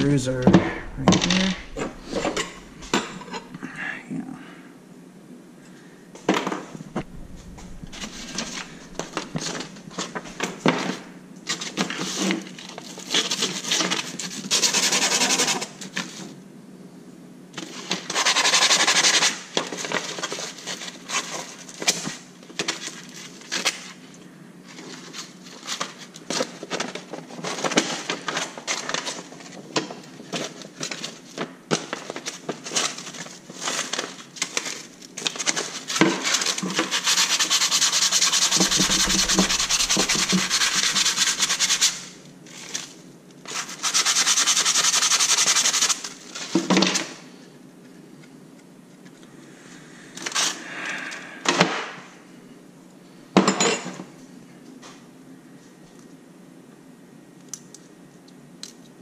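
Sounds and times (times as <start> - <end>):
steady rubbing noise: 0.0 - 3.7, 6.7 - 10.5, 36.6 - 42.3.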